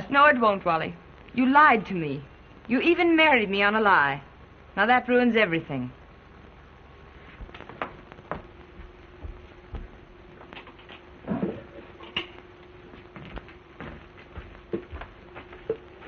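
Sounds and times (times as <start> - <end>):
steady low hum: 0.0 - 16.0
film soundtrack crackle and clicks: 6.0 - 16.0.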